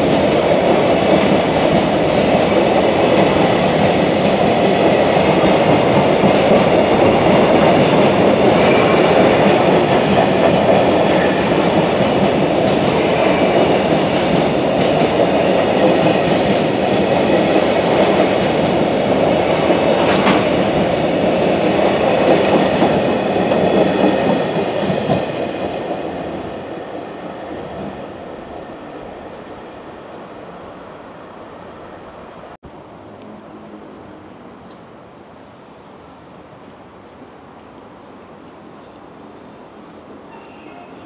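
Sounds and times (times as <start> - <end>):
train wheels rumbling on rails: 0.0 - 30.6.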